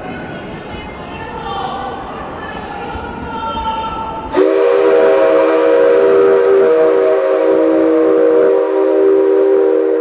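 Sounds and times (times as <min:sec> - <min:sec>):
steam locomotive whistle: 0:04.3 - 0:10.0.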